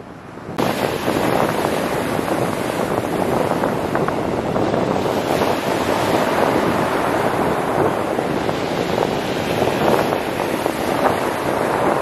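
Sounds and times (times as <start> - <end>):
wind buffeting microphone: 0.0 - 12.0
waves breaking on pebbles: 0.6 - 12.0.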